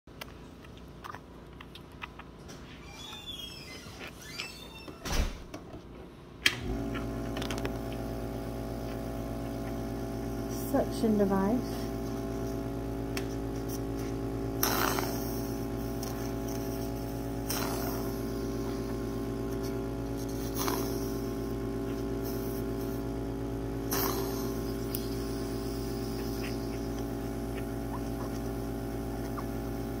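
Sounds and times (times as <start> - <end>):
suction machine motor humming: 6.6 - 30.0
short sucking noises: 14.6 - 23.2, 23.8 - 28.5.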